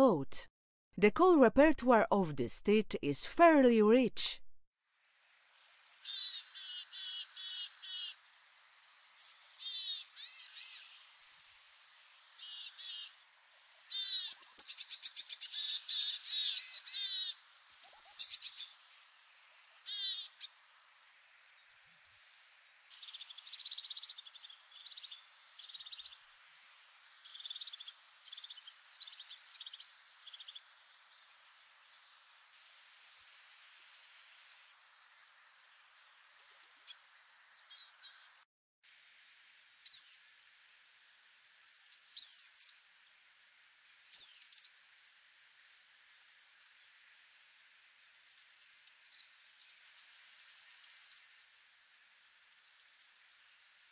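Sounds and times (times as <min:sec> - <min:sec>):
bird calls: 0:12.4 - 0:18.7.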